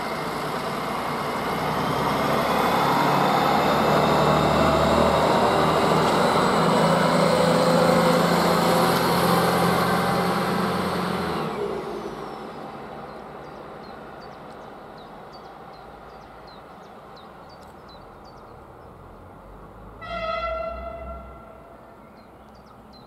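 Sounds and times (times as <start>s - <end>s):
railcar engines running: 0.0s - 2.4s, 3.4s - 18.8s
train horn note: 20.0s - 21.9s.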